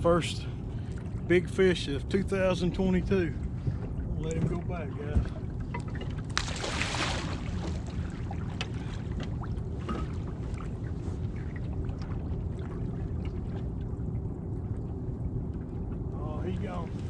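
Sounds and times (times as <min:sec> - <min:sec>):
steady low rumble: 0:00.0 - 0:17.0
water splashing at boat side: 0:03.6 - 0:13.8.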